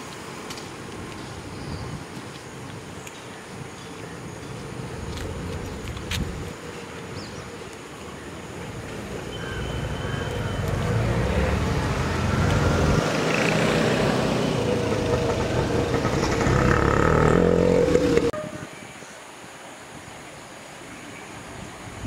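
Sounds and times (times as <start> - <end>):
vehicle engine running: 9.6 - 18.3.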